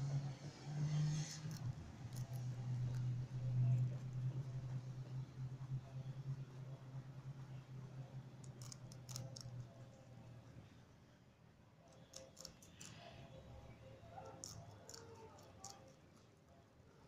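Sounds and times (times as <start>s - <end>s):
rabbit chewing celery: 0.9s - 5.8s, 8.0s - 9.9s, 11.9s - 13.4s, 14.1s - 16.5s.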